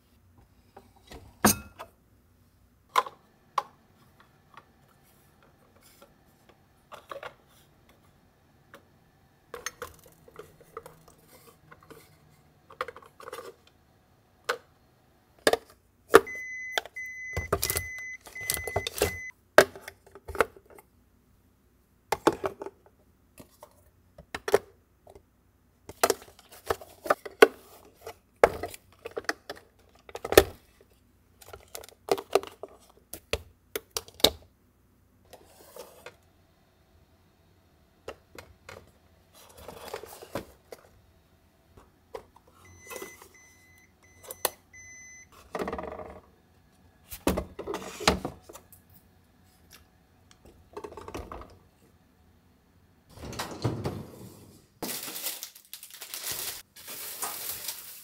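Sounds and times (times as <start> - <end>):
refrigerator door alarm beeps: 16.2 - 19.3, 42.7 - 45.3.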